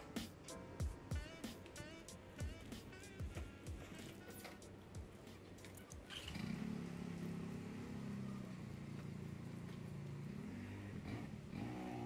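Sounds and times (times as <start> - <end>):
vehicle engine running: 6.1 - 12.0.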